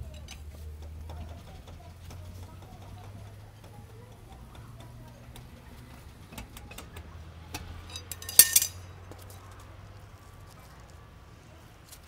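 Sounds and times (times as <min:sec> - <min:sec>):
metal clinking and knocking: 0:07.6 - 0:08.9
sharp metal clank: 0:07.9 - 0:08.8.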